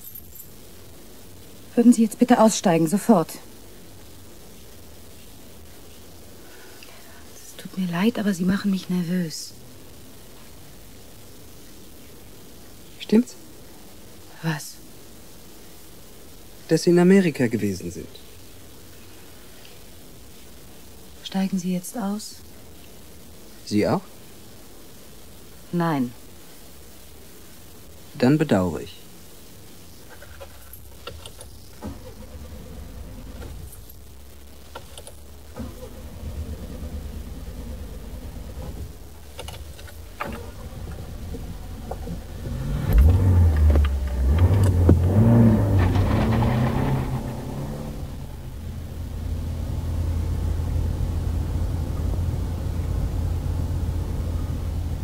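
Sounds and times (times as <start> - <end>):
car engine revving: 31.8 - 33.7, 35.6 - 38.9, 40.1 - 55.0.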